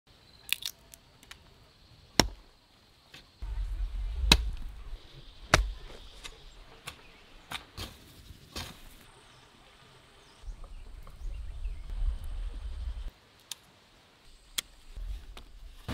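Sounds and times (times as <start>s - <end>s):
peanut shells cracking: 0.5s - 1.4s
hoe chopping into dry soil: 2.2s - 2.4s, 4.2s - 4.8s, 5.4s - 9.0s.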